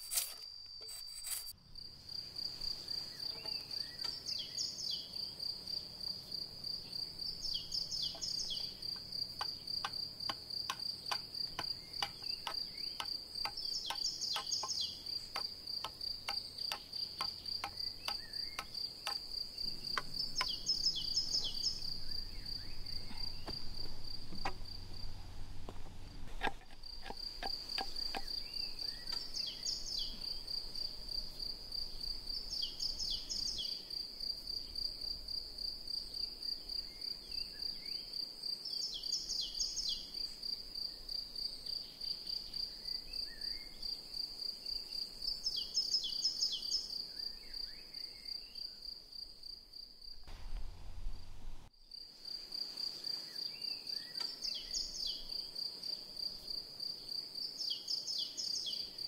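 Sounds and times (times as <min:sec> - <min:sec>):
blade cutting wooden pole: 0:00.0 - 0:01.5, 0:09.4 - 0:19.3, 0:26.2 - 0:28.4
insects chirring: 0:00.0 - 0:50.4, 0:51.8 - 0:59.0
brief higher insect call: 0:16.3 - 0:25.3, 0:26.8 - 0:33.9.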